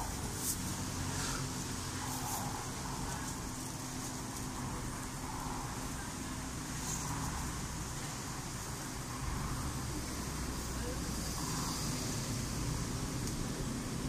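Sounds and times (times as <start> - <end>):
low street rumble: 0.0 - 14.0
steady hum: 0.0 - 14.0.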